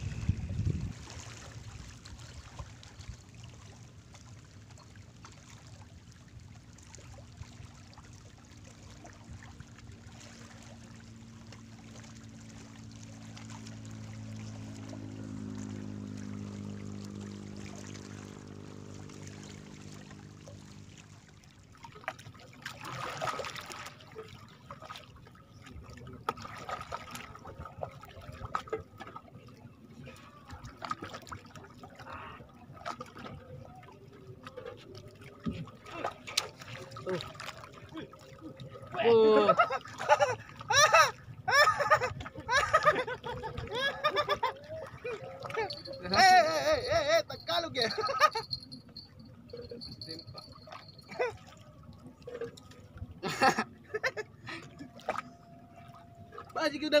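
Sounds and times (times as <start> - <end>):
waves lapping against rocks: 0.0 - 48.6
boat engine humming: 0.0 - 57.0.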